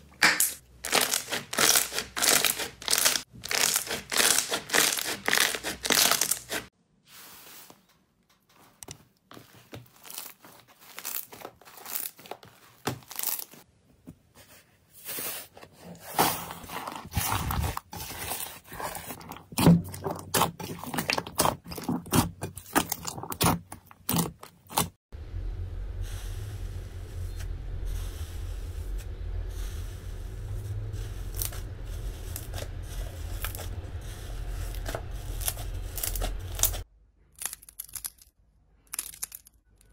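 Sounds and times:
hands kneading slime: 0:00.9 - 0:07.7, 0:16.0 - 0:25.0
low hum: 0:25.1 - 0:36.8.

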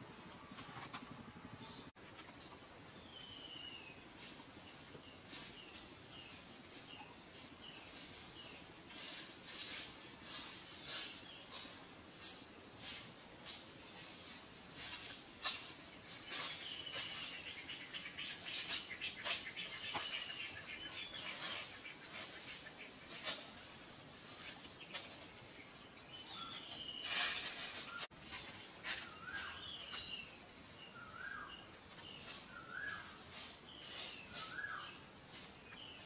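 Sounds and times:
small birds chirping: 0:00.0 - 0:36.0
dry leaves crackling underfoot: 0:31.2 - 0:36.0.

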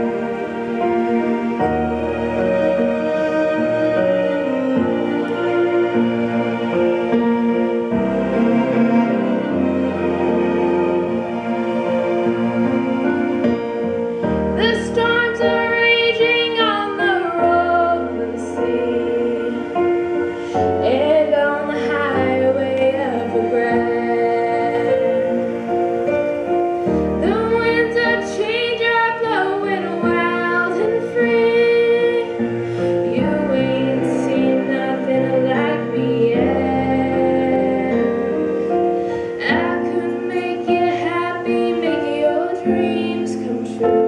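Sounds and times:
instrumental accompaniment: 0:00.0 - 0:44.0
girl singing into a microphone: 0:14.6 - 0:19.2, 0:27.2 - 0:32.3, 0:39.4 - 0:44.0.

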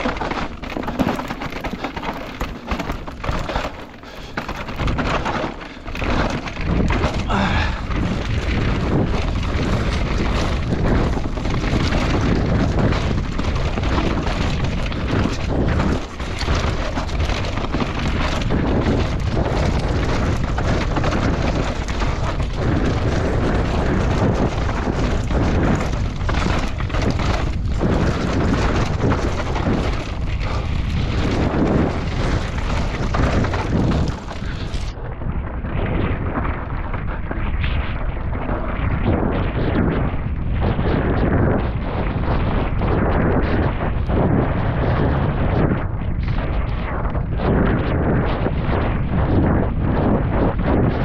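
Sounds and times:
knocks and rattles from bumps: 0:00.0 - 0:07.4
bike tyres roaring on dirt: 0:00.0 - 0:51.0
wind rumbling on microphone: 0:00.0 - 0:51.0.

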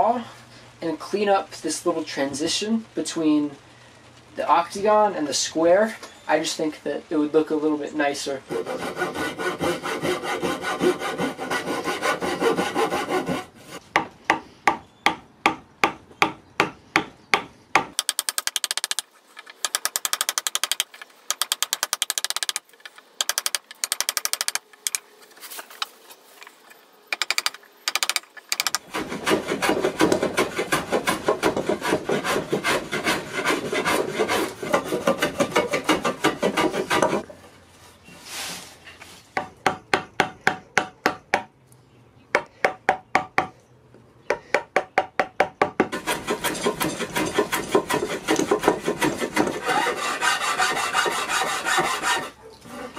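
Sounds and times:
hand saw cutting wood: 0:08.4 - 0:14.0, 0:27.2 - 0:37.2, 0:45.9 - 0:52.9
chisel scraping wood: 0:08.5 - 0:13.8, 0:27.2 - 0:37.2, 0:45.9 - 0:52.9.

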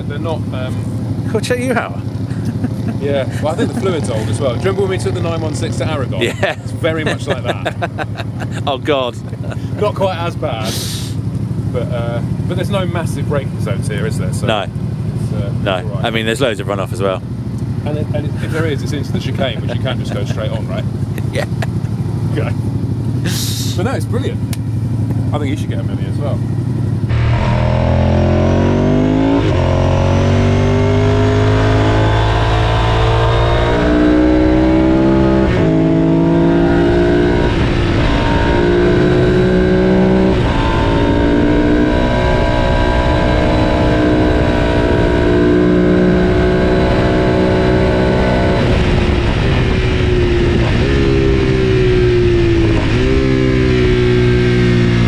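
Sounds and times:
motorcycle engine revving: 0:00.0 - 0:55.0
wind rush: 0:48.5 - 0:53.0.

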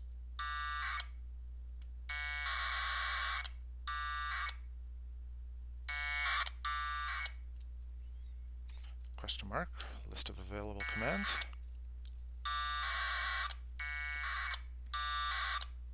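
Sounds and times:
low steady hum: 0:00.0 - 0:15.9
warbling two-tone data chirps: 0:10.8 - 0:11.5.

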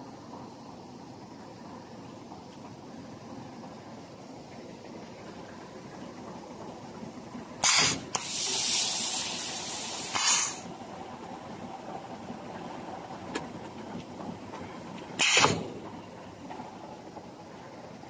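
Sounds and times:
low machine hum: 0:00.0 - 0:18.0
pneumatic valve hissing: 0:07.6 - 0:10.7, 0:15.2 - 0:15.7.

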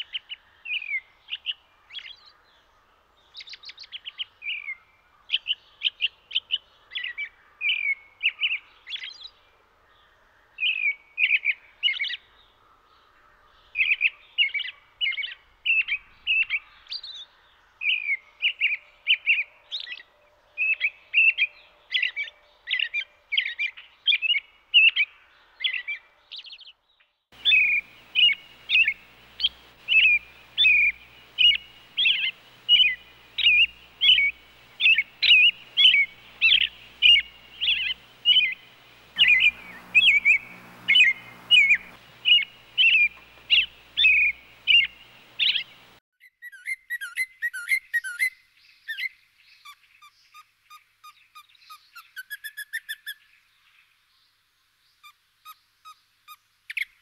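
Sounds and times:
robin singing: 0:27.3 - 0:50.4
steady low hum: 0:27.4 - 0:46.0.

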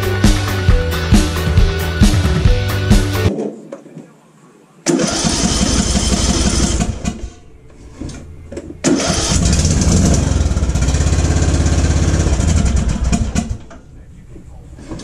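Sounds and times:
lawn tractor engine cranking: 0:04.9 - 0:13.9.

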